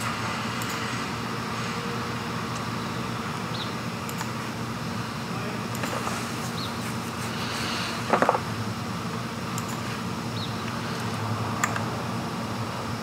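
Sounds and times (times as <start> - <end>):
low fan hum: 0.0 - 13.0
computer mouse clicks: 0.6 - 0.8, 4.1 - 4.4, 9.6 - 9.8.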